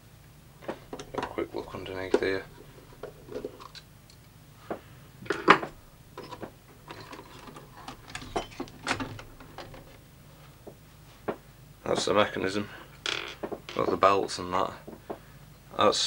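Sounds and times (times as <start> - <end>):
metal chassis clicks and knocks: 0.7 - 3.8, 5.3 - 10.0.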